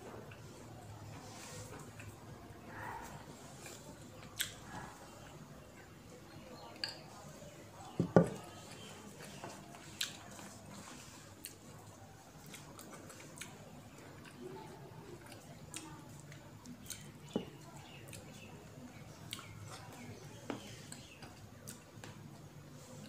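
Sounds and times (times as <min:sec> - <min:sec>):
chewing and mouth smacking: 0:03.6 - 0:04.8, 0:09.2 - 0:18.5, 0:19.3 - 0:20.0.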